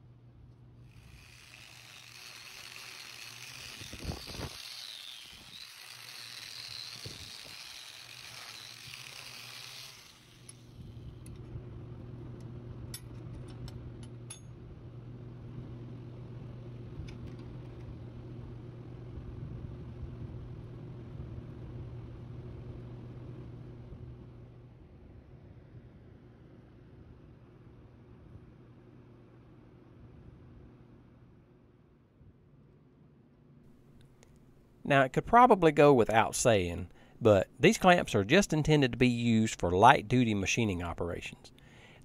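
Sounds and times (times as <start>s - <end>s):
welding arc sizzling: 0.8s - 11.1s
steady low hum: 9.9s - 31.4s.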